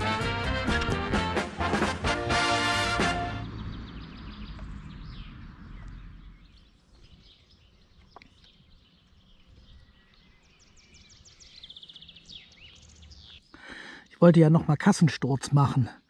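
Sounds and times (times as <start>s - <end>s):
music: 0.0s - 3.5s
small birds chirping faintly: 3.3s - 16.0s.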